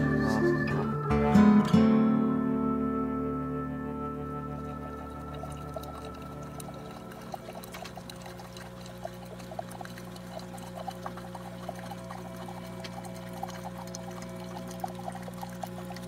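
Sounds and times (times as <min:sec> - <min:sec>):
coffee maker humming: 0:04.6 - 0:16.0
coffee streaming into mug: 0:05.0 - 0:16.0.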